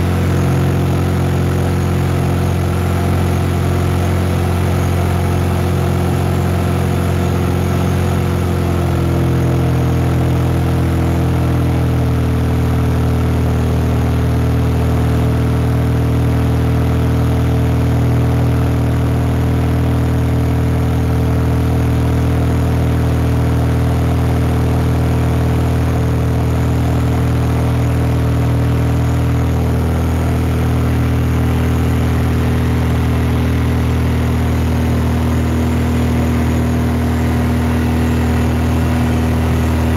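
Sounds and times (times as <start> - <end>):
aircraft engine and propeller droning: 0.0 - 11.1, 27.2 - 39.9.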